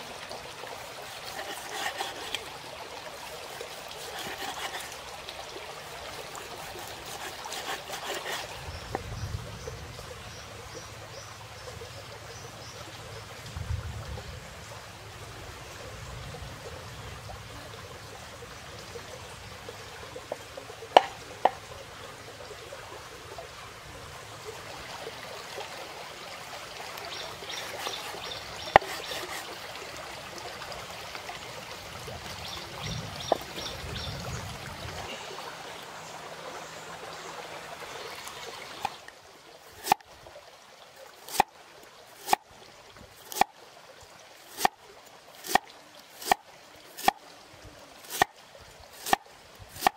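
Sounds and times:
stream water trickling: 0:00.0 - 0:49.9
knife chopping on wooden board: 0:04.1 - 0:04.9, 0:06.8 - 0:08.5, 0:28.7 - 0:29.4.

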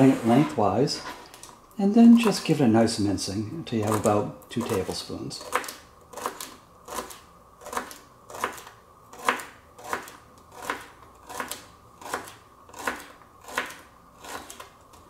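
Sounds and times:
knife chopping on plastic board: 0:05.4 - 0:14.7.

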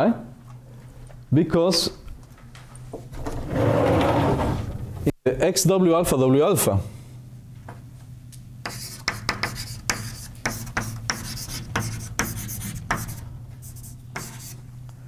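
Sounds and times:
steady low hum: 0:00.0 - 0:15.0
scratching and tapping on board: 0:08.7 - 0:13.2, 0:13.8 - 0:14.6.

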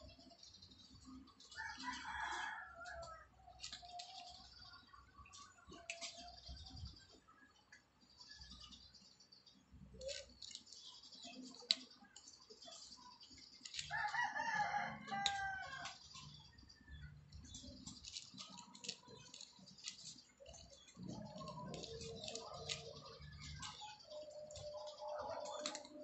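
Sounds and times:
cat crunching dry kibble: 0:13.6 - 0:16.4, 0:17.6 - 0:23.9.

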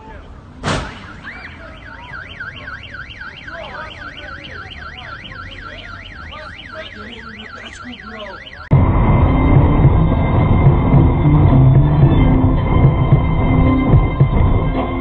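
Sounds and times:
sharp knock: 0:00.6 - 0:01.2
car alarm sweeping tone: 0:00.8 - 0:15.0.

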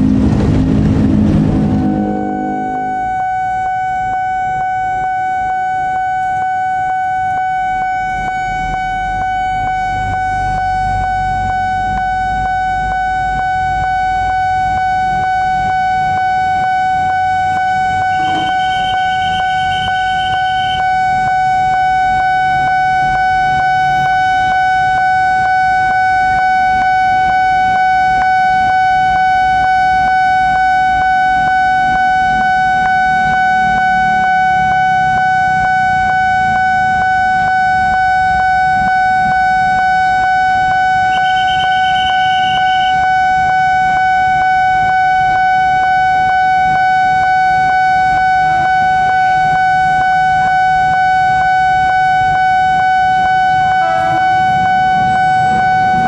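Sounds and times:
brief higher tone: 0:00.0 - 0:04.4, 0:18.0 - 0:20.8, 0:53.7 - 0:56.0
low traffic rumble: 0:00.0 - 0:56.0
level crossing warning bell: 0:17.7 - 0:20.4, 0:53.2 - 0:56.0.

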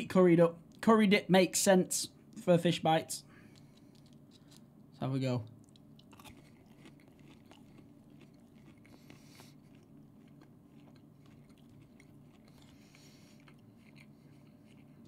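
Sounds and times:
low room hum: 0:00.0 - 0:15.0
faint chewing: 0:03.3 - 0:15.0.

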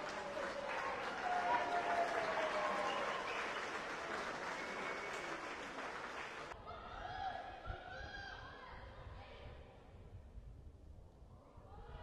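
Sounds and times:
spectators applauding and cheering: 0:00.0 - 0:06.6.

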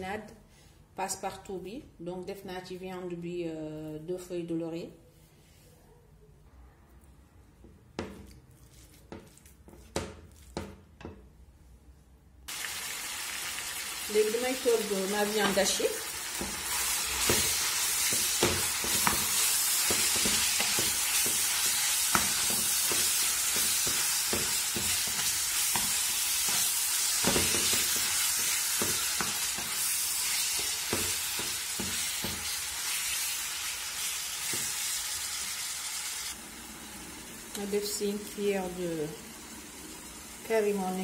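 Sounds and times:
wooden spatula taps and scrapes: 0:07.6 - 0:11.4, 0:17.2 - 0:26.6, 0:27.2 - 0:29.8
meat sizzling in a pan: 0:12.5 - 0:40.8.

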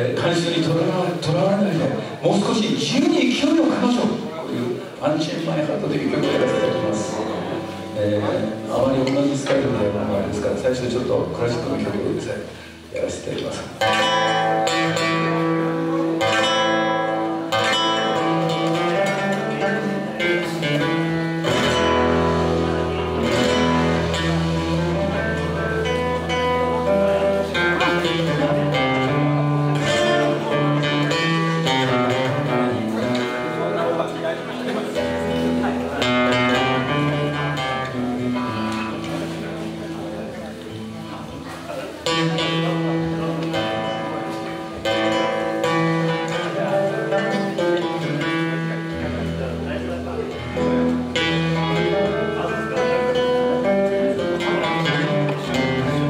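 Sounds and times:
electric guitars: 0:00.0 - 0:56.0
live band playing amplified music: 0:00.0 - 0:56.0
bass guitar: 0:05.7 - 0:56.0
drums: 0:18.2 - 0:33.2.

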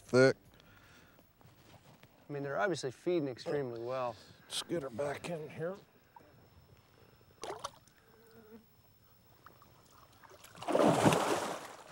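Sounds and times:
water splashing by a boat: 0:09.6 - 0:11.9.

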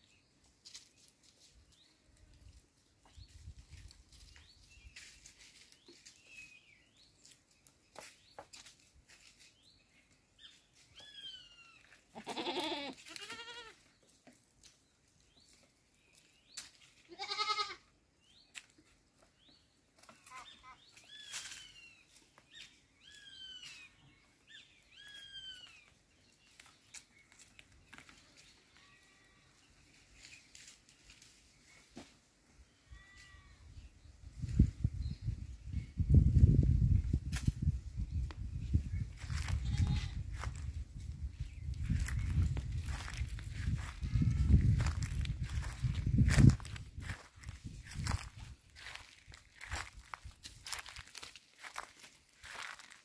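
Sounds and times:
goats bleating: 0:12.1 - 0:13.8, 0:17.1 - 0:17.8.

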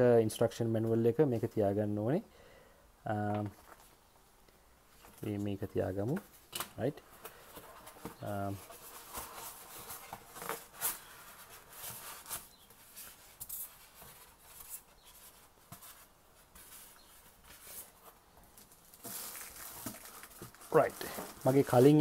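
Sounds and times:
packaging rustling and scraping: 0:06.0 - 0:22.0.

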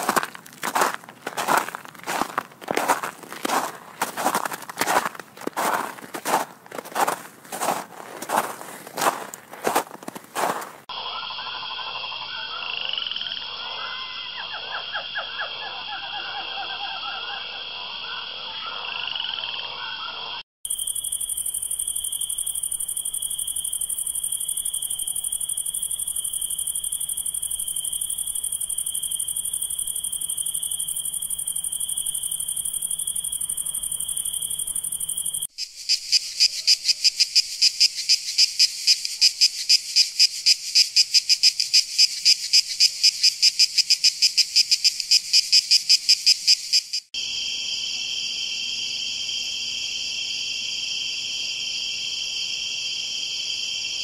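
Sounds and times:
cicadas buzzing: 0:00.0 - 0:54.0
crickets chirping: 0:00.0 - 0:54.0
forest insects calling: 0:00.0 - 0:54.0.

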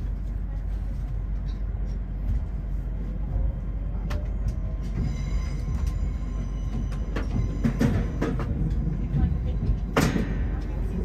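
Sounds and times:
train rumble from inside carriage: 0:00.0 - 0:11.0.

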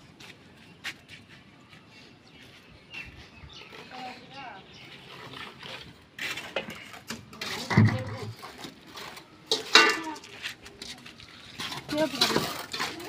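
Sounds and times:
clanks of bricks and pans: 0:06.3 - 0:13.0.

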